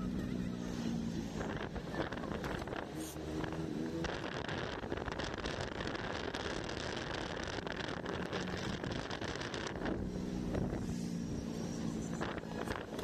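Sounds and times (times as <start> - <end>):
engine hum: 0.0 - 13.0
road noise: 0.0 - 13.0
wind rushing over microphone: 0.0 - 13.0.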